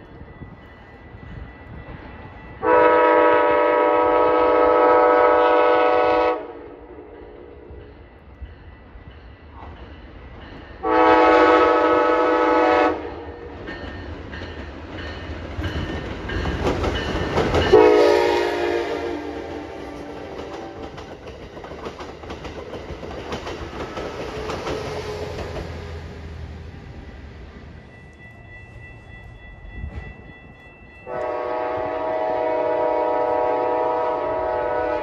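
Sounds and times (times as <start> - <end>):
train rumbling past: 0.0 - 35.0
train horn blasts: 2.6 - 7.8, 10.8 - 13.5, 17.7 - 21.0, 31.0 - 35.0.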